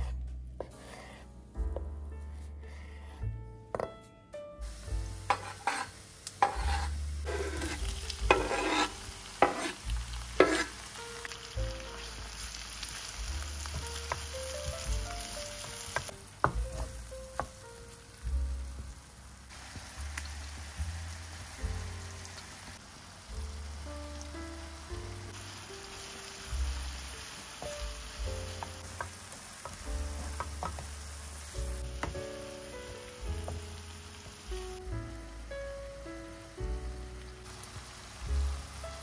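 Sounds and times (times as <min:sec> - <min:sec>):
food sizzling in hot oil: 0:04.6 - 0:39.0
wooden spatula knocking in pan: 0:05.2 - 0:05.8, 0:06.4 - 0:09.8, 0:10.4 - 0:10.7, 0:13.3 - 0:17.6, 0:27.6 - 0:31.0, 0:31.8 - 0:32.4, 0:33.3 - 0:34.4
knife chopping on wooden board: 0:05.3 - 0:09.8, 0:10.4 - 0:10.7, 0:28.6 - 0:30.9.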